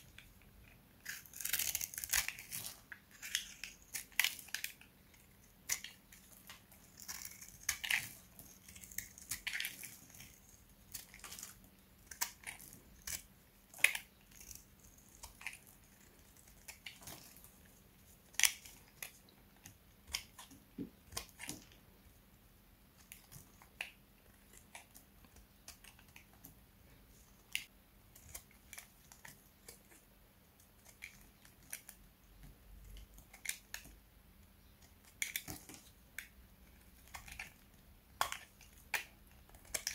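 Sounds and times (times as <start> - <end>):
dry soap crunching: 0.0 - 21.8, 34.7 - 39.9.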